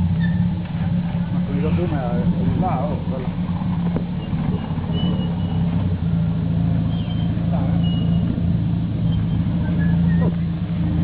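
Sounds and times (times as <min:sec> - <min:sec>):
car engine running steadily: 0:00.0 - 0:11.0.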